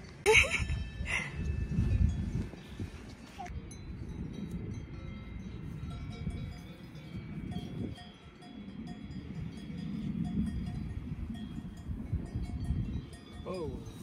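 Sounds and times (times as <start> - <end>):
wind rumble on microphone: 0.0 - 14.0
cowbells clanking: 3.7 - 14.0.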